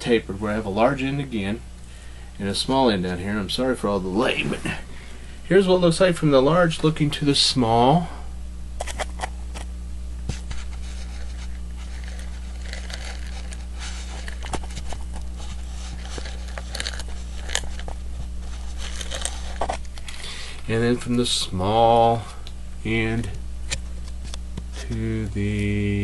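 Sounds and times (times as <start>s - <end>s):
low electrical hum: 0.0s - 26.0s
handling clicks and scrapes: 8.8s - 9.7s, 10.3s - 20.3s.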